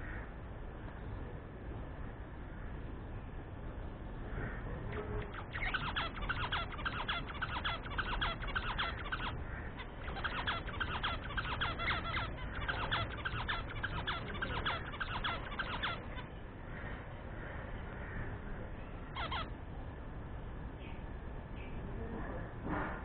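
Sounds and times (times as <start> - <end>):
budgerigar chattering: 4.9 - 16.4, 19.1 - 19.6.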